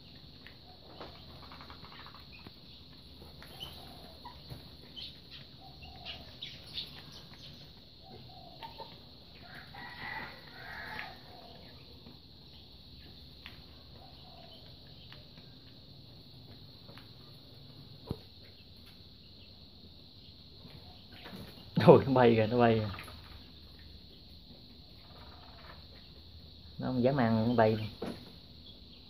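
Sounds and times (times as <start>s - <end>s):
hen clucking: 0.7s - 15.3s.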